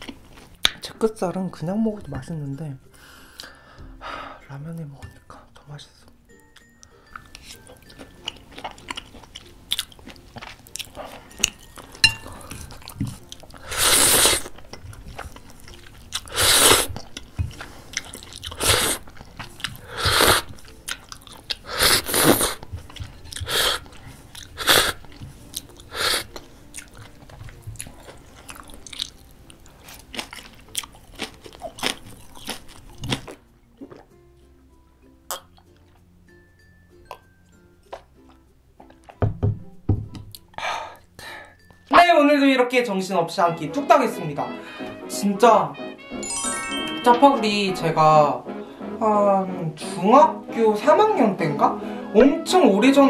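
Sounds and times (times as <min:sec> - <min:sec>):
wet chewing: 0:00.0 - 0:00.8, 0:06.6 - 0:34.5
noodle slurping: 0:12.4 - 0:17.1, 0:17.8 - 0:22.6, 0:23.3 - 0:27.2.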